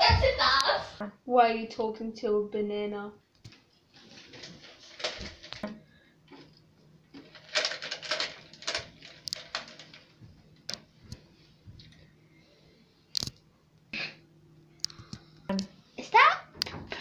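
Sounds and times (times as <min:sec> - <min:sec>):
hand rummaging in plastic tub: 0:03.9 - 0:05.6, 0:07.1 - 0:10.2.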